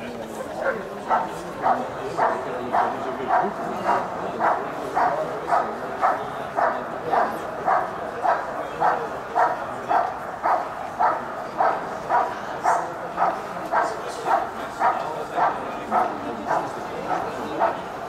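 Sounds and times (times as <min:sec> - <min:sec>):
dog barking: 0:00.6 - 0:17.8.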